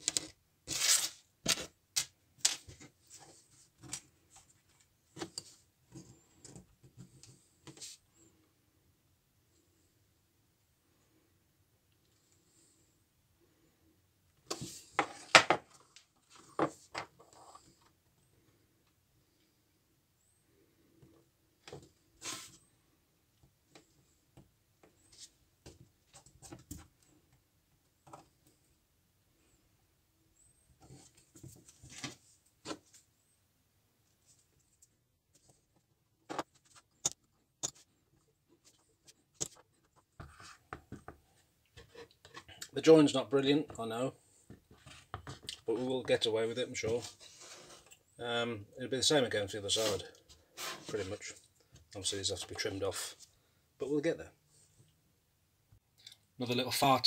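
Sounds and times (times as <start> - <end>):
rustling scrape: 22.2 - 22.7, 46.8 - 48.0, 49.7 - 51.4.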